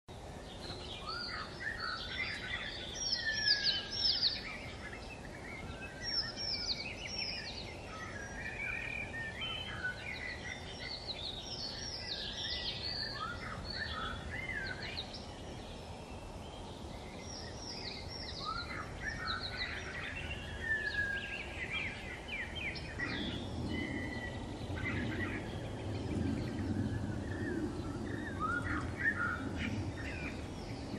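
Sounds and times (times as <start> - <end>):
songbirds chirping and whistling: 0.1 - 30.9
low rumble: 21.7 - 30.9.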